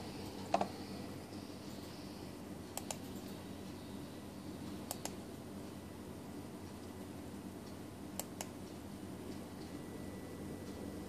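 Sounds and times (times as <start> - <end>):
faint steady hum: 0.0 - 11.0
sharp clicks: 2.8 - 3.1, 4.9 - 5.2.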